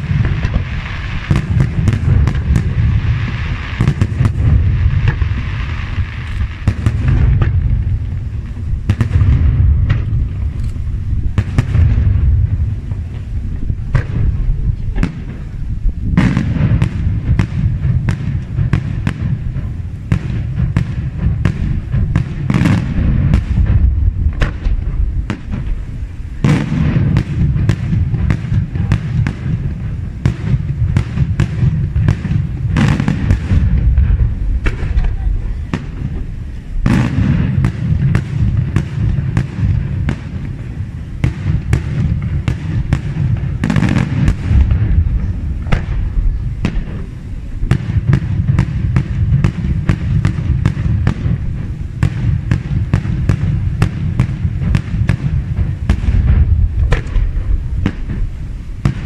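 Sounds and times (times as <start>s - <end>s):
fireworks bangs: 0.0s - 59.0s
steady low rumble: 0.0s - 59.0s.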